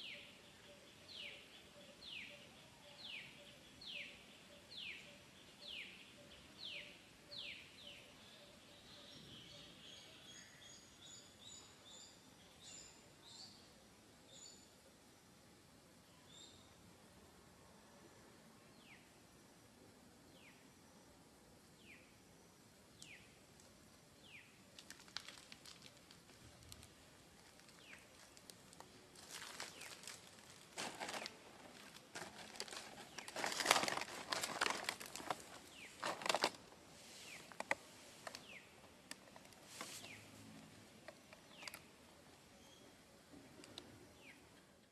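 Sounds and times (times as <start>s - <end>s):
bird chirping: 0.0s - 14.8s, 21.7s - 23.5s, 31.0s - 36.4s, 37.2s - 44.9s
dry crackling and rustling: 24.7s - 40.3s, 41.0s - 41.9s.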